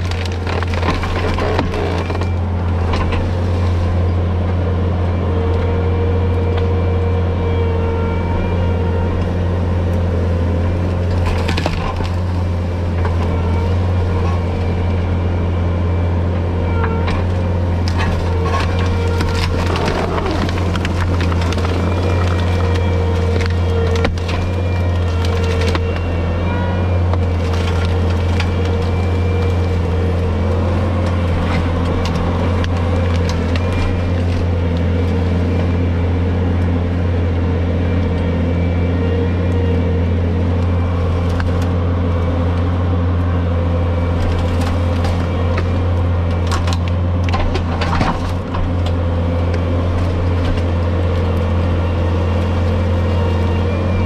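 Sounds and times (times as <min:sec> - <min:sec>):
brush cracking and snapping: 0:00.0 - 0:04.1, 0:09.2 - 0:15.1, 0:17.1 - 0:26.4, 0:27.0 - 0:37.2, 0:40.3 - 0:43.2, 0:44.0 - 0:54.0
mower engine droning: 0:00.0 - 0:54.0.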